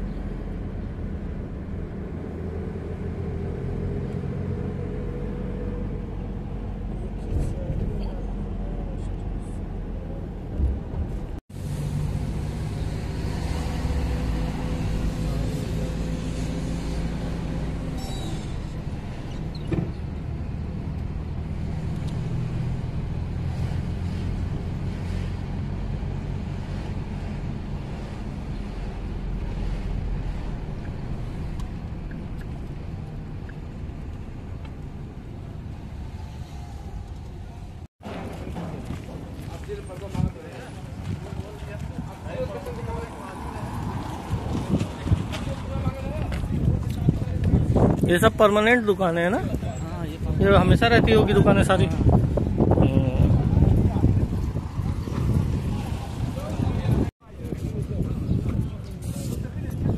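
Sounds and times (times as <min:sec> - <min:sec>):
road rumble: 0:00.0 - 0:59.9.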